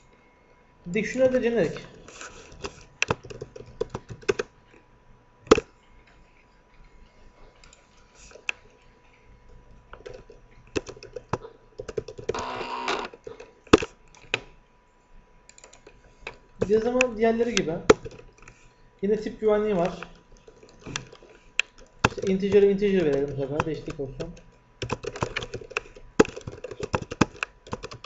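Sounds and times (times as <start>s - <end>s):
faint steady tone: 0.0s - 2.4s.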